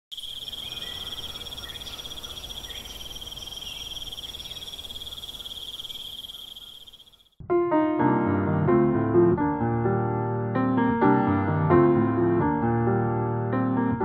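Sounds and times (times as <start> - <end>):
crickets trilling: 0.1 - 7.4.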